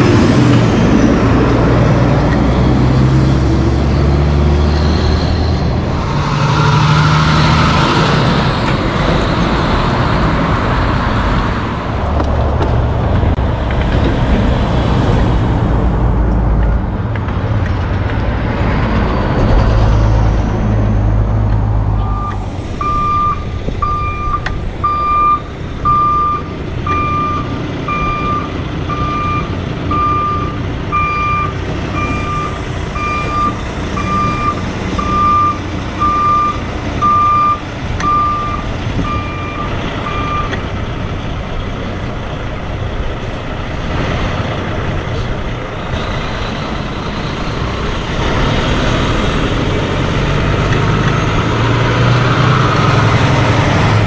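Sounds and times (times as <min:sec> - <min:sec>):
diesel truck engine running: 0:00.0 - 0:54.0
road noise: 0:00.0 - 0:54.0
reversing alarm beeping: 0:22.0 - 0:40.6.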